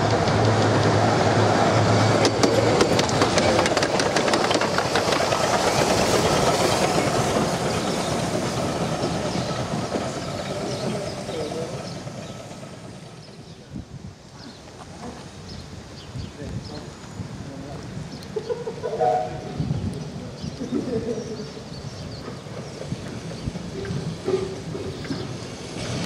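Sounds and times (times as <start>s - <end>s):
wheels clicking over rail joints: 0.0s - 13.4s, 22.1s - 26.0s
steam locomotive running past: 0.0s - 15.9s, 18.5s - 26.0s.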